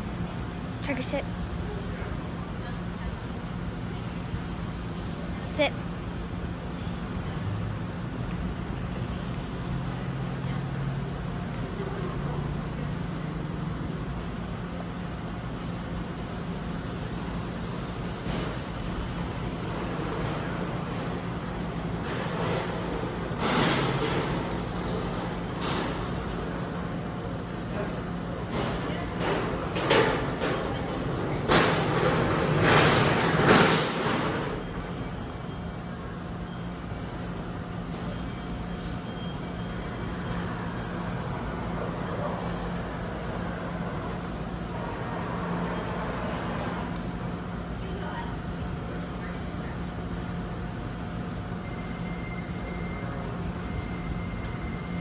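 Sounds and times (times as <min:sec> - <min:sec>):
cart rolling on concrete: 0:17.0 - 0:47.0.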